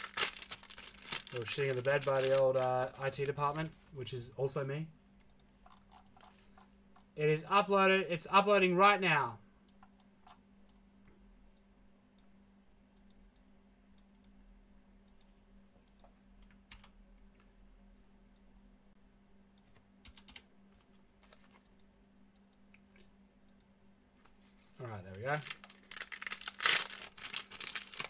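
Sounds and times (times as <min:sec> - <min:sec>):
steady low hum: 0:00.0 - 0:28.0
computer keyboard typing: 0:05.2 - 0:07.1, 0:20.0 - 0:20.5.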